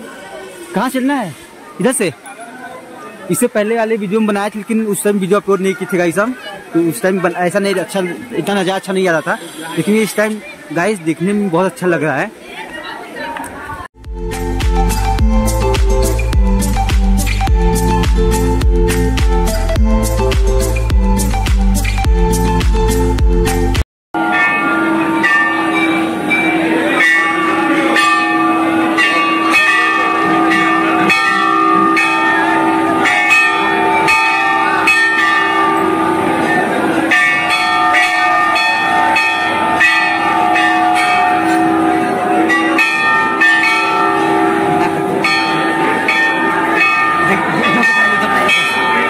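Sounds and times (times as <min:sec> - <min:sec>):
crowd voices: 0:00.0 - 0:49.0
bells clanging: 0:24.2 - 0:49.0.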